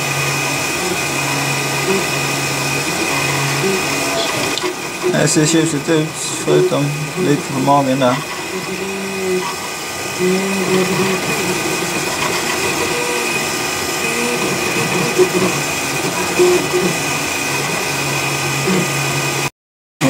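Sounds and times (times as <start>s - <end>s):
printer stepper motors whirring: 0.0s - 19.5s
steady high hum: 0.0s - 19.5s.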